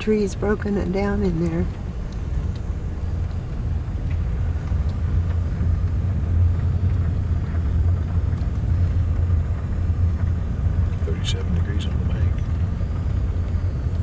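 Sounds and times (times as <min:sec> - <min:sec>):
car engine and road noise: 0:00.0 - 0:14.0.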